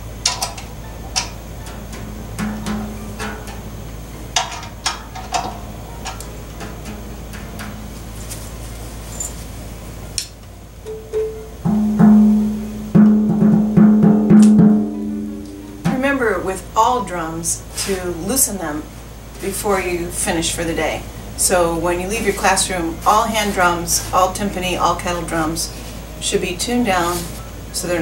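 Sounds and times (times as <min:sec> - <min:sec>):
mallet strokes on kettle drum: 0:01.7 - 0:03.8, 0:11.2 - 0:16.5.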